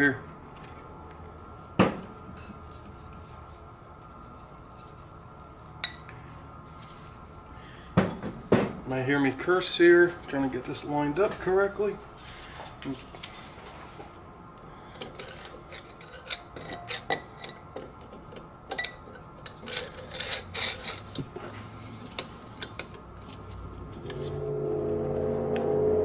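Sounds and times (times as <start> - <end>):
metal clinking and scraping: 14.9 - 26.0
low hum: 23.0 - 26.0.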